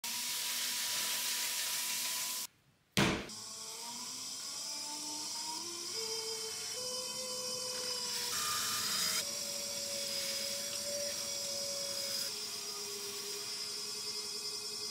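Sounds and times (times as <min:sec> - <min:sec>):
sharp knock: 0:03.0 - 0:03.3
potter's wheel motor hum: 0:03.4 - 0:14.9
wet sponge hissing on wheel: 0:08.1 - 0:13.7.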